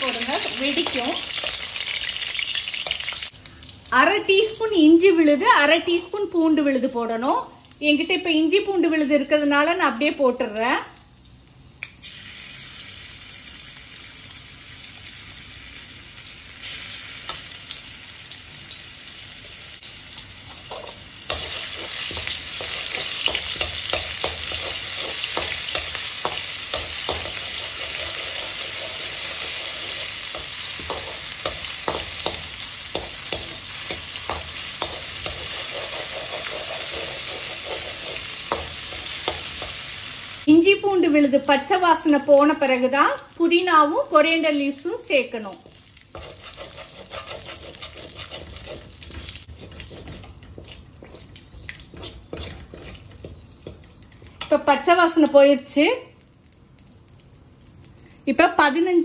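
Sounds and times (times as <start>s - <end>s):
paste sizzling in hot oil: 0.0s - 3.4s, 12.0s - 40.6s, 43.4s - 54.5s
spatula scraping and tapping pan: 20.5s - 39.8s, 45.6s - 54.6s.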